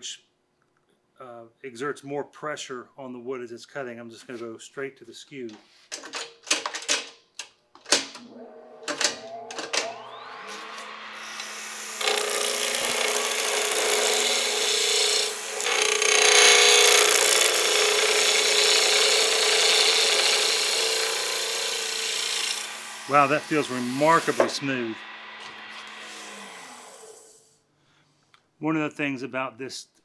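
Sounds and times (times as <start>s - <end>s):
lathe motor hum: 8.2s - 27.4s
chisel cutting spinning wood: 8.9s - 27.4s.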